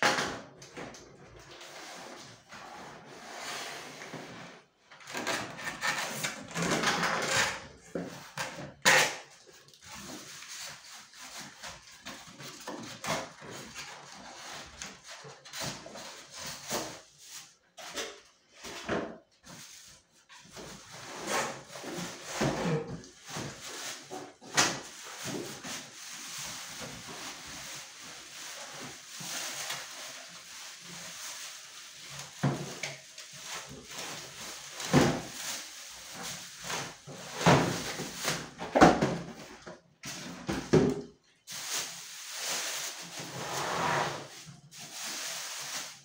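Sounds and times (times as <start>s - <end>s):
plastic bag rustling: 23.0s - 39.2s, 41.4s - 43.4s, 44.1s - 46.0s.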